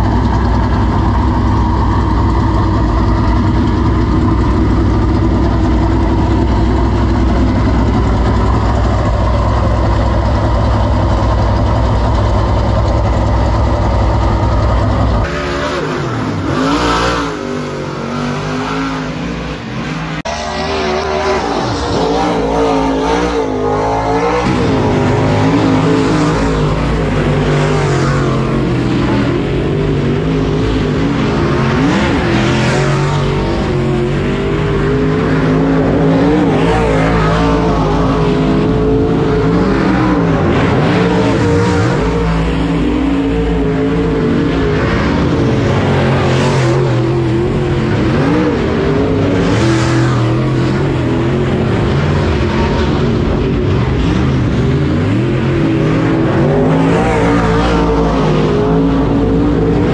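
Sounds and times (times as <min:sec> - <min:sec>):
race car engine idling: 0:00.0 - 0:16.6
race car engines on dirt track: 0:00.0 - 0:59.9.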